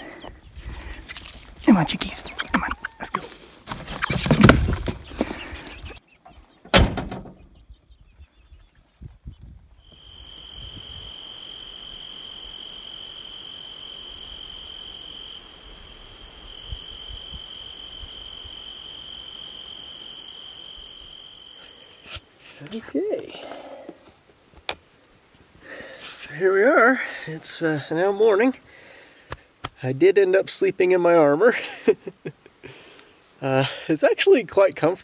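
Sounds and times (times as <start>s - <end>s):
cricket trilling: 1.6s - 3.2s, 9.8s - 23.5s
faint hiss: 9.8s - 35.0s.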